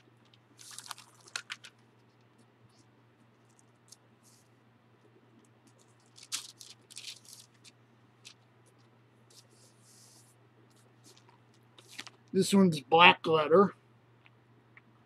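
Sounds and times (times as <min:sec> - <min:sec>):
low steady hum: 0:00.0 - 0:15.0
paper pages rustling: 0:00.2 - 0:04.5, 0:05.6 - 0:12.2.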